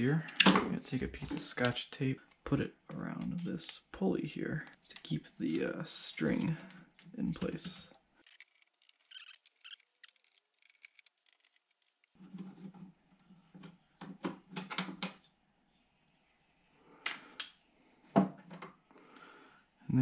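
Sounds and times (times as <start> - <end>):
metallic clicks of screws and parts: 7.9 - 12.2.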